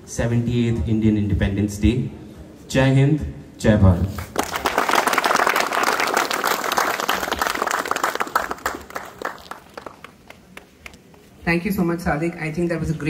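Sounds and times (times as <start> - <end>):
audience applauding: 4.3 - 10.7.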